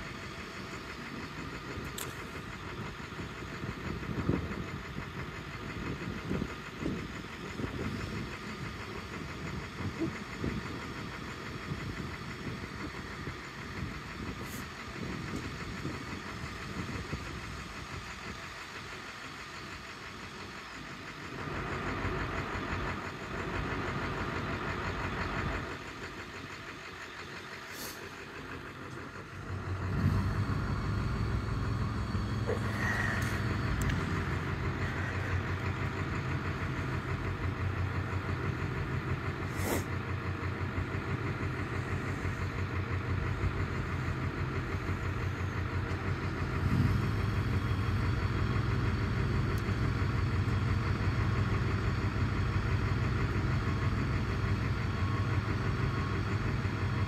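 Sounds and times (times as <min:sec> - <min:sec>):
engine droning: 0:00.0 - 0:57.0.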